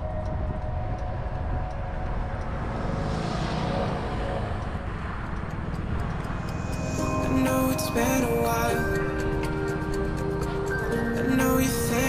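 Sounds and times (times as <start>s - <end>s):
wind rumble on microphone: 0.0s - 12.0s
faint motorbike engine: 1.2s - 7.0s.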